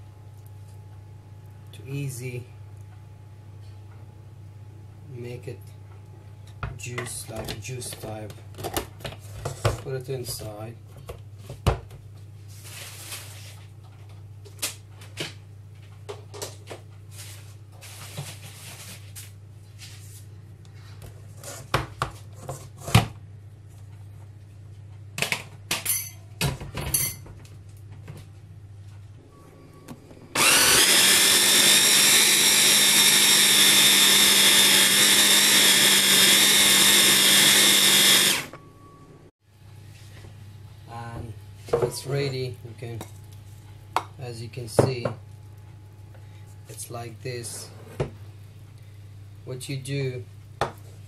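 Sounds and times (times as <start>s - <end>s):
food chopper motor running: 30.3s - 38.6s.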